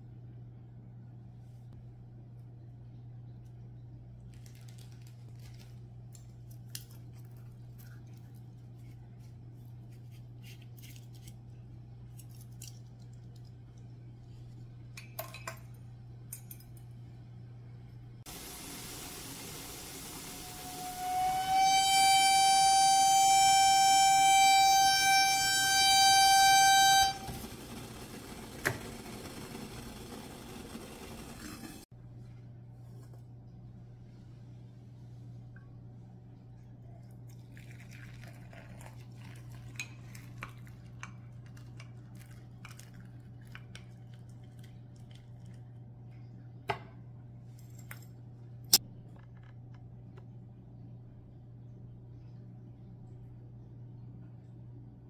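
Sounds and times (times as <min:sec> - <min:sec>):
stovetop kettle whistling: 0:18.3 - 0:31.9.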